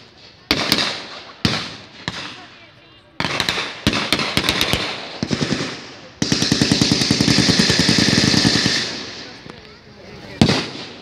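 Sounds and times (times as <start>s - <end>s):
blank gunshots: 0.0s - 2.6s, 3.2s - 9.4s, 10.3s - 11.0s
rapid automatic gunfire burst: 3.2s - 9.4s.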